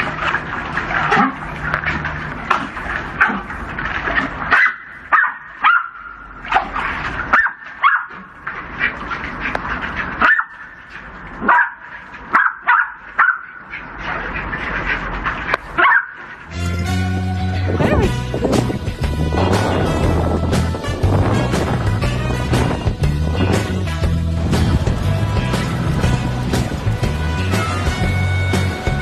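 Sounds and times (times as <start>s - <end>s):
dogs yipping and barking: 3.1s - 3.5s, 4.2s - 14.9s, 15.5s - 16.4s.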